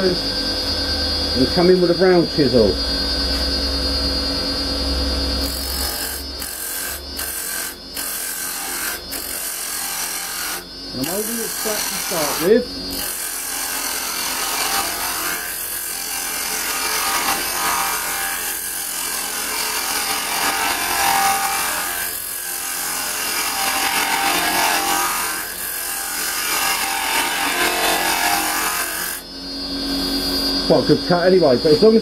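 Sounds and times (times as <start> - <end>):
lathe tool scraping wood: 5.4 - 29.2.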